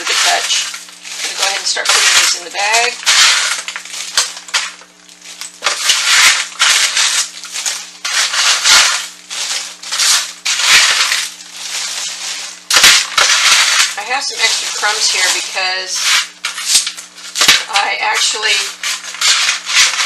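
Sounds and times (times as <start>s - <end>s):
dry bread cubes crunching: 0.0s - 20.0s
plastic bag crinkling: 0.0s - 20.0s.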